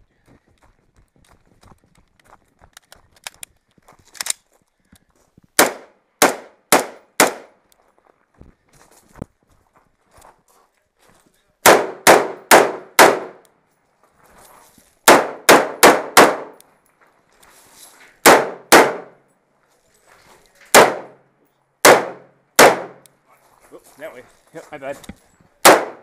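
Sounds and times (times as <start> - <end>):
rifle shots with metallic ring: 11.7 - 13.4, 18.3 - 19.2, 20.7 - 21.2.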